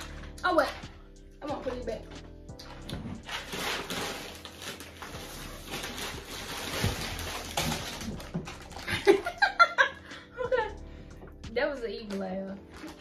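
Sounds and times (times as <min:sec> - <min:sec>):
plastic packaging rustling: 0:02.6 - 0:09.7, 0:12.0 - 0:13.0.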